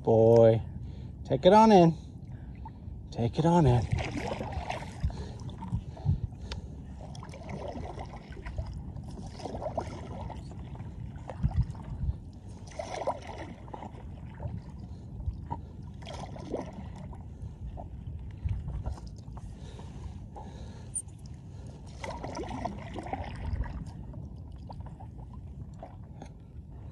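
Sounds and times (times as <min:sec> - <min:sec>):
low steady rumble: 0:00.0 - 0:26.9
paddle strokes in water: 0:03.6 - 0:26.9
water splashes and drips: 0:03.8 - 0:19.8, 0:21.2 - 0:26.3.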